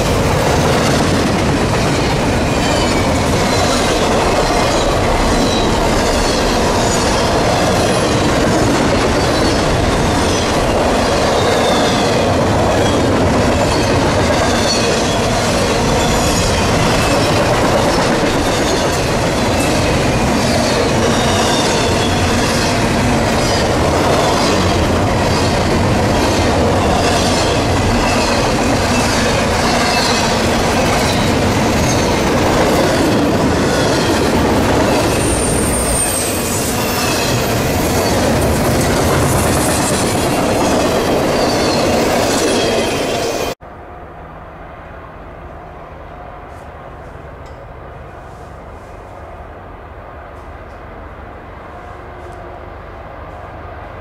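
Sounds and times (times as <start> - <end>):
freight train rumbling past: 0.0 - 54.0
high-pitched wheel squeal: 34.9 - 38.3.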